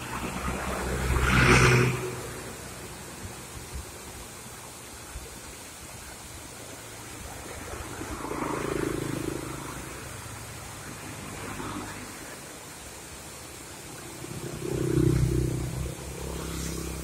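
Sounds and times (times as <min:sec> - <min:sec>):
vehicle passing: 0:00.0 - 0:02.7, 0:07.6 - 0:12.6, 0:14.0 - 0:17.0
waterfall rushing over rocks: 0:00.0 - 0:17.0.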